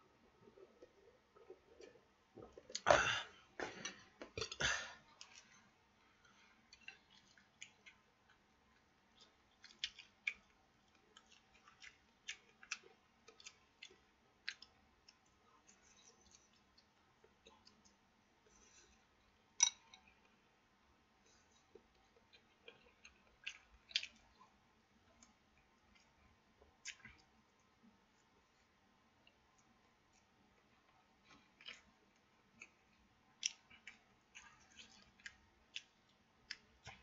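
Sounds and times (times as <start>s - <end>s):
person chewing with clicks: 6.2s - 18.0s, 21.6s - 26.2s, 26.8s - 27.3s, 31.2s - 37.0s.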